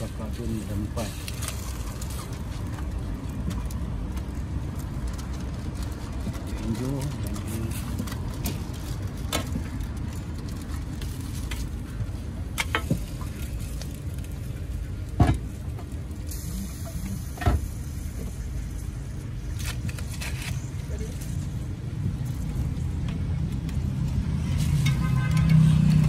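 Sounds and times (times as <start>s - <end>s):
food sizzling on a griddle: 0.0s - 8.2s, 16.2s - 26.0s.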